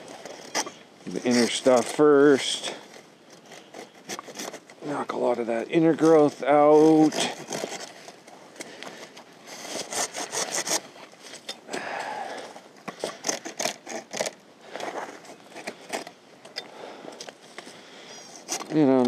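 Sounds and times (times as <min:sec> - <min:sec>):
handsaw rasping through branch: 0:00.4 - 0:05.2, 0:05.8 - 0:08.1, 0:09.0 - 0:11.9, 0:12.9 - 0:16.2.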